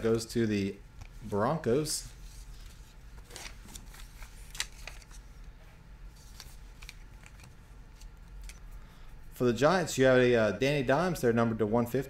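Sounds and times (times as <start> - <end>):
low steady hum: 0.0 - 12.0
trading cards in plastic being handled: 2.2 - 5.2, 6.2 - 8.7.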